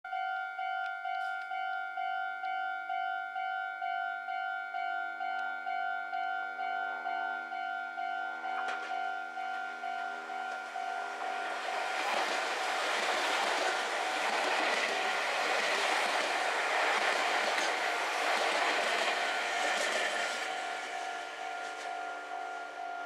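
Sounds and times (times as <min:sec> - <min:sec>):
level crossing warning bell: 0:00.1 - 0:23.0
electric train passing: 0:05.2 - 0:23.0
wheels clacking over rail joints: 0:08.5 - 0:22.0.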